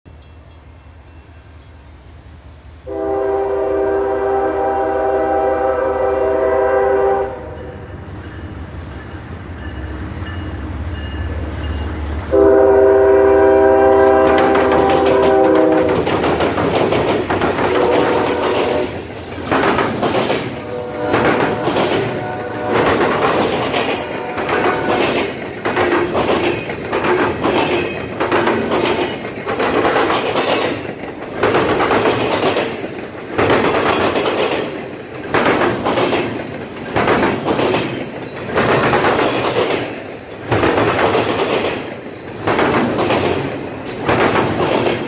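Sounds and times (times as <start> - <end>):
train air horn blasts: 2.8 - 7.8, 12.3 - 16.1, 17.7 - 19.0, 20.6 - 25.2
locomotive rumble: 2.9 - 32.3
train wheels clattering over rails: 13.2 - 45.0.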